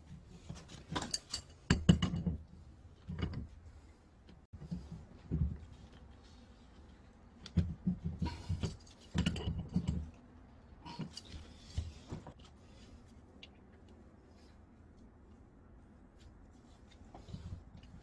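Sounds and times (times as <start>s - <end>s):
knocks and rustling: 4.6s - 10.2s.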